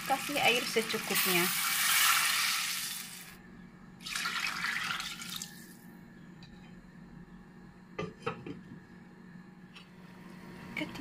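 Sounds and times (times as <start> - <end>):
water pouring into a pot: 0.0 - 3.4, 4.0 - 5.6.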